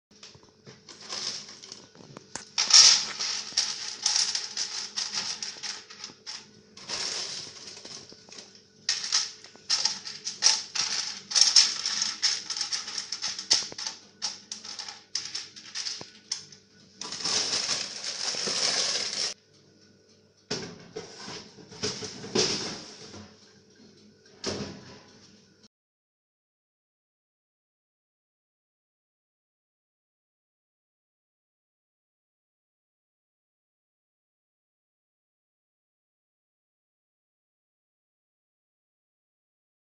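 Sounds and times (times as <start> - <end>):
faint electrical hum: 0.2 - 25.7
beans rattling on a tray: 0.9 - 19.4.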